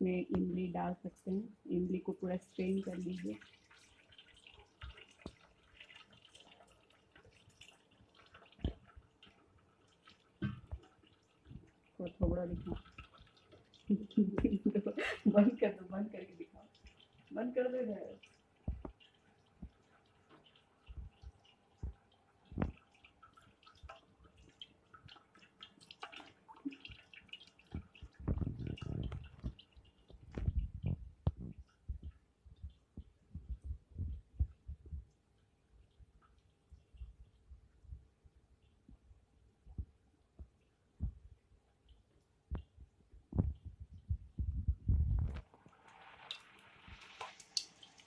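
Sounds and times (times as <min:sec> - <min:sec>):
water dripping through strainer: 0:00.3 - 0:48.0.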